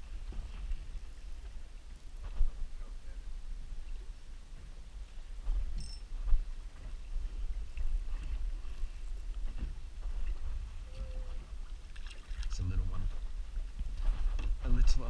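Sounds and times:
wind rumble on microphone: 0:00.0 - 0:15.0
water slapping boat hull: 0:11.6 - 0:13.9.

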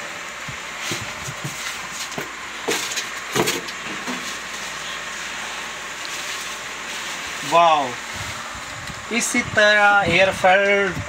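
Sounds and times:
foam packing crackling: 0:00.5 - 0:09.2
plastic bag rustling and crinkling: 0:00.7 - 0:08.6.

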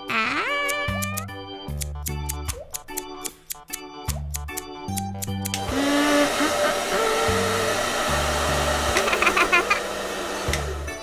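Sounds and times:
cartoon sound effect: 0:00.0 - 0:01.3
bouncy children's music: 0:00.0 - 0:05.8
hair dryer blowing: 0:05.6 - 0:11.0.

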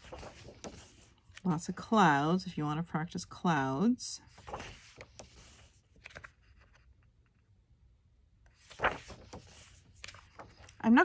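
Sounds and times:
page turning swish: 0:00.0 - 0:01.4, 0:04.3 - 0:06.8, 0:08.6 - 0:10.8
paper rustling: 0:00.0 - 0:01.6, 0:04.2 - 0:07.0, 0:08.5 - 0:10.8.

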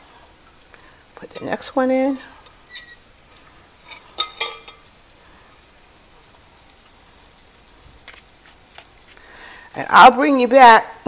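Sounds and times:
fish sizzling in pan: 0:00.0 - 0:11.0
clinks against glass bowl: 0:04.2 - 0:04.8.

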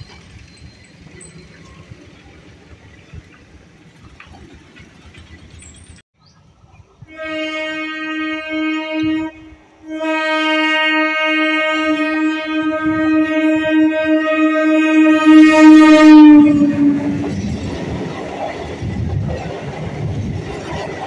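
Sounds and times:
train horn blasts: 0:07.0 - 0:17.4.

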